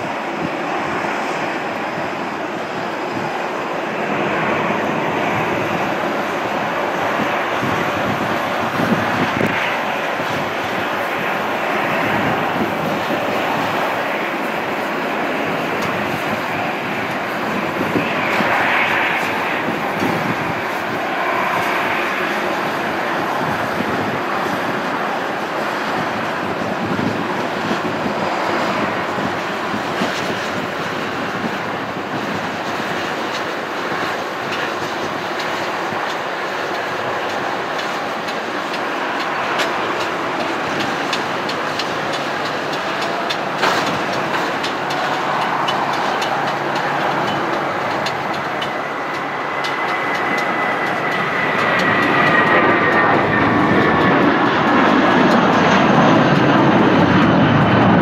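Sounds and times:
jet engines rushing: 0.0 - 58.0
jet whine falling in pitch: 38.8 - 58.0.

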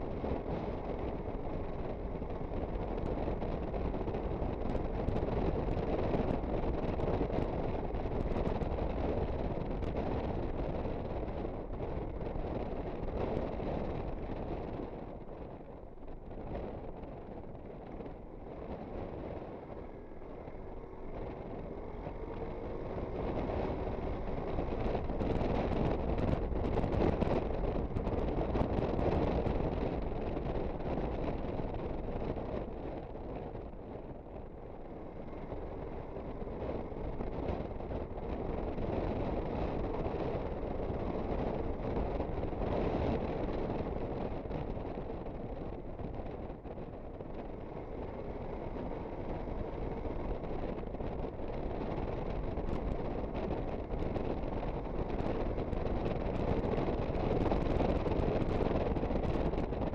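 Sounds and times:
road noise: 0.0 - 59.9
wind rush on microphone: 0.0 - 59.9
scooter engine: 16.7 - 59.9.

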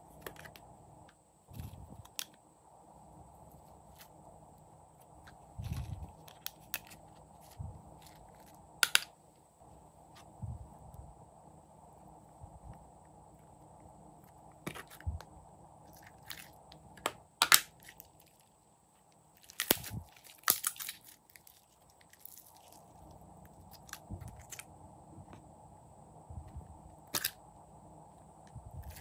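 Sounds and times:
slime popping and crackling: 19.4 - 22.8.

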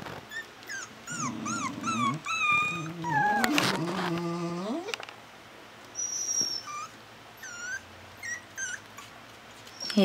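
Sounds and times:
puppies whining and whimpering: 0.1 - 5.0, 5.9 - 10.0.

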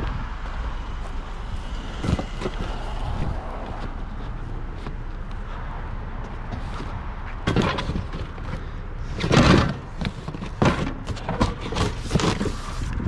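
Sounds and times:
low steady rumble: 0.0 - 7.4
knocks and clattering thumps: 6.5 - 8.6, 9.2 - 12.6.

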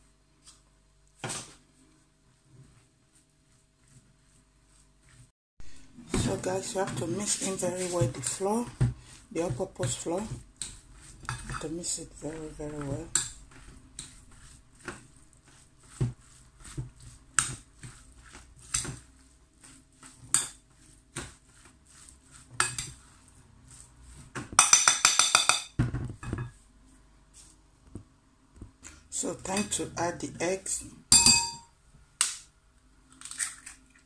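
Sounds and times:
spoon stirring thick mixture: 1.4 - 25.5, 28.8 - 30.8
spoon clinking against bowl: 31.1 - 31.7.

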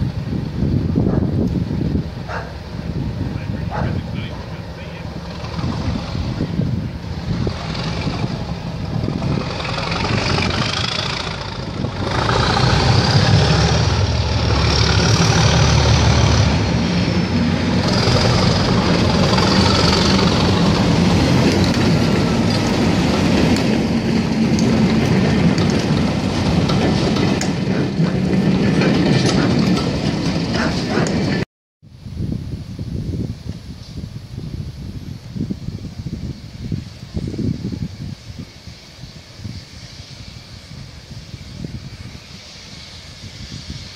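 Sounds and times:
diesel locomotive engine: 0.0 - 31.4, 34.9 - 43.9
train wheels clicking over rail joints: 3.7 - 31.4.

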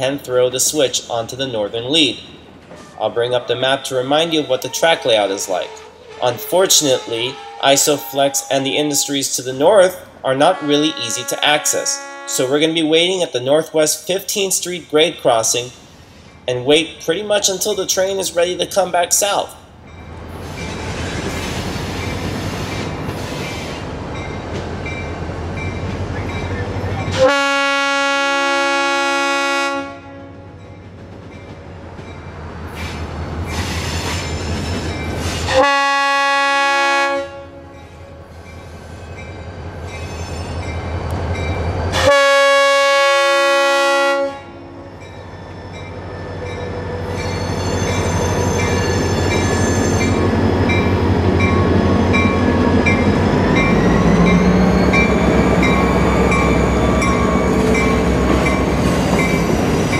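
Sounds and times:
train engine rumbling: 0.0 - 59.9
train horn: 6.0 - 8.7, 10.4 - 12.6, 27.1 - 30.5, 35.5 - 37.8, 42.0 - 44.9
crossing bell ringing: 24.1 - 27.3, 44.8 - 59.9.

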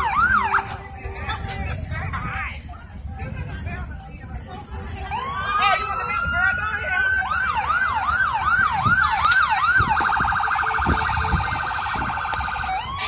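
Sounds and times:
electronic siren cycling tones: 6.1 - 13.0.

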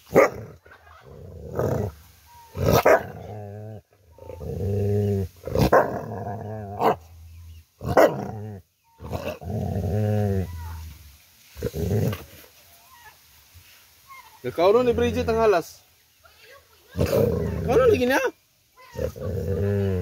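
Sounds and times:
dog barking: 0.1 - 0.5, 2.7 - 3.2, 6.8 - 7.0, 7.9 - 8.2
dog growling: 0.3 - 11.0, 17.0 - 18.0, 18.8 - 20.0.

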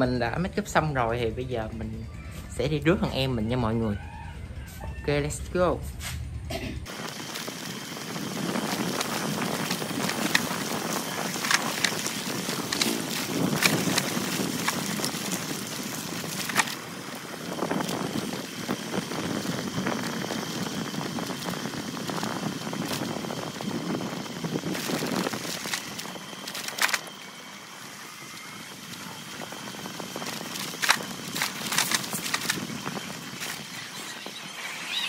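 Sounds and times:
crackling rustling handling noise: 6.9 - 34.3.

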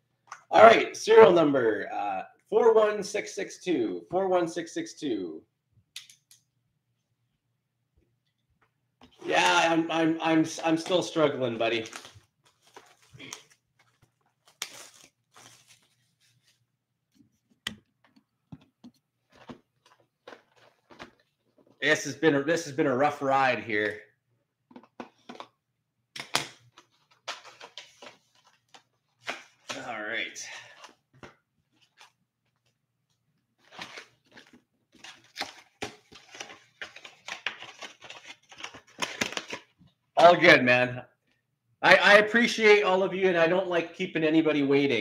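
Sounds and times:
foil packs crinkling: 11.7 - 16.3, 33.6 - 39.7.

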